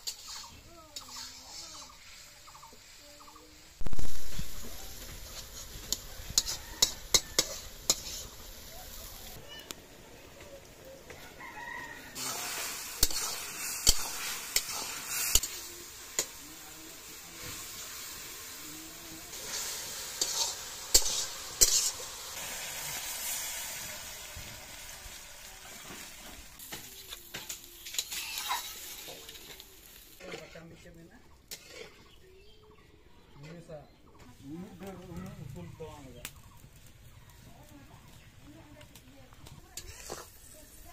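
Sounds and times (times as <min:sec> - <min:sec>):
metal spatula scraping pan: 0:00.0 - 0:02.2, 0:05.3 - 0:08.5, 0:19.3 - 0:22.2, 0:27.3 - 0:30.8, 0:31.5 - 0:32.2, 0:39.8 - 0:40.4
food sizzling in pan: 0:00.0 - 0:32.8, 0:34.1 - 0:40.9.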